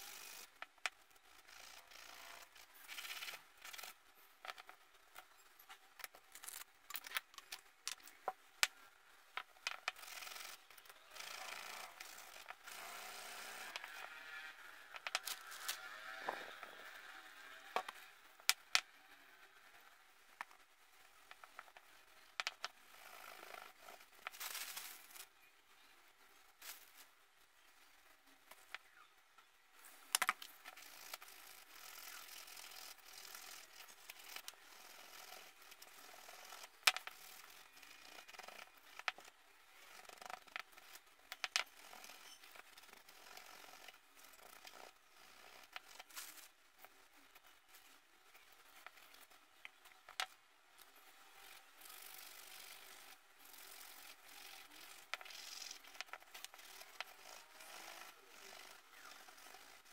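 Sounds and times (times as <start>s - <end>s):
rubbing metal fittings on cloth: 50.9s - 59.9s.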